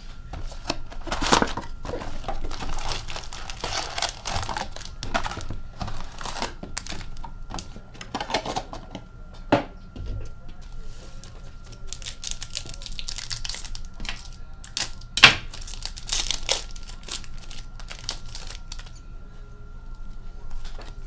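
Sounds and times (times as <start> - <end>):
wrapper rustling and crinkling: 0.7 - 7.2, 11.2 - 19.0.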